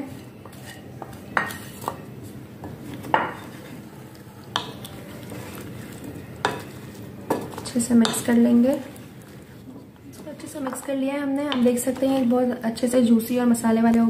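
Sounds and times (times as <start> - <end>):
spoon scraping glass bowl: 0.0 - 2.0.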